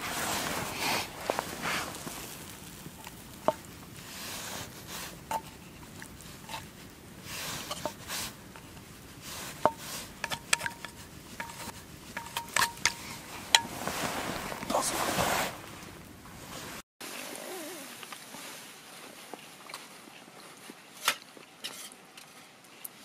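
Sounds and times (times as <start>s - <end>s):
utensil scraping skillet clinks: 9.7s - 13.7s.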